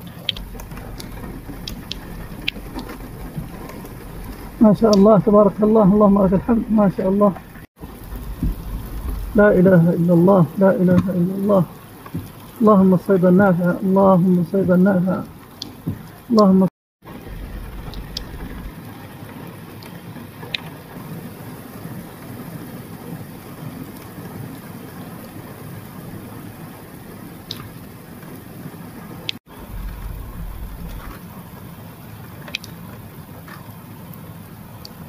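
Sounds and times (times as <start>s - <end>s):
low rumble: 0.0s - 11.8s, 17.1s - 18.9s, 29.5s - 31.3s
heavy rain pouring: 0.0s - 35.0s.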